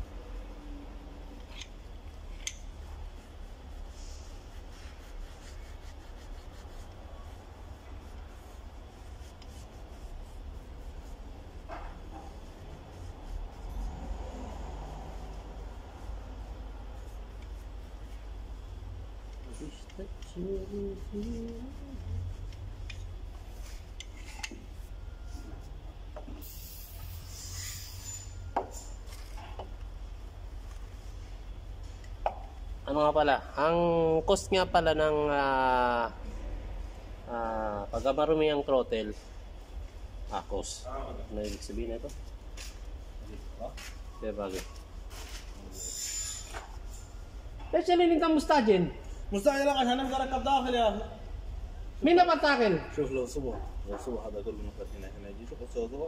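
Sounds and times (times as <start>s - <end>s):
soft hiss: 0.0s - 56.0s
steady low hum: 0.0s - 56.0s
tissue rubbing and plastic rustling: 2.2s - 14.0s
short hiss: 26.3s - 29.1s.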